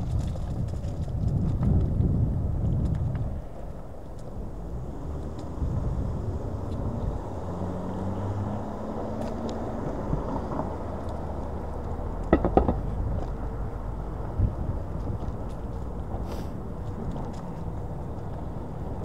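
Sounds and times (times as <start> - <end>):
scooter tyre rumble on road: 0.0 - 19.0
wind on microphone: 0.0 - 19.0
sharp knocks: 12.3 - 12.9.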